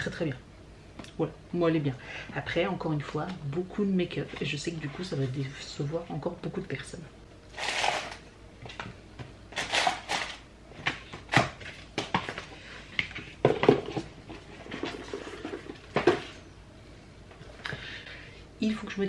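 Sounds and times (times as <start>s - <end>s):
packaging rustling: 7.5s - 8.2s, 9.5s - 10.4s.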